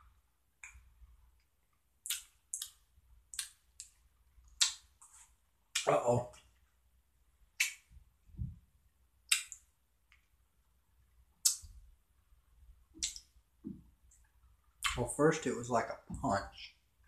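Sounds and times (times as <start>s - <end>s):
lips and tongue smacking: 2.0s - 6.0s, 9.3s - 10.3s
soft chewing thuds: 13.0s - 15.0s.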